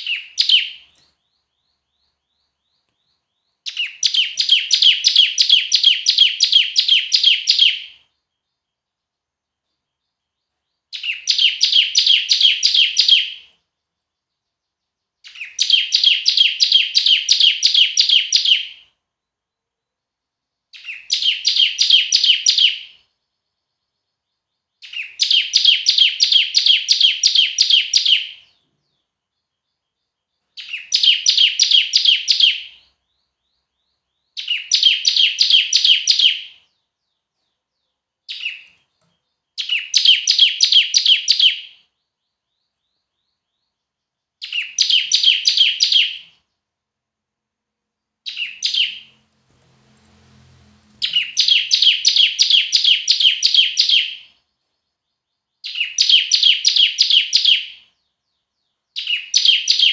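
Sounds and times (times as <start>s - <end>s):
bird singing rapid high notes: 0.0s - 8.8s, 48.3s - 59.9s.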